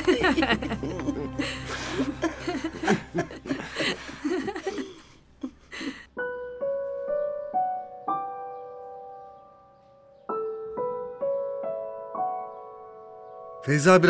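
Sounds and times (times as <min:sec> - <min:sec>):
soft solo piano: 0:06.2 - 0:13.6.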